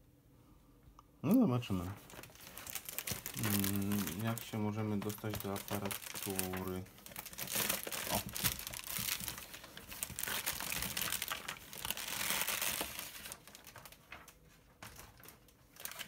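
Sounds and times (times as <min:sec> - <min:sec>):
plastic packaging crinkling: 0:01.7 - 0:16.0.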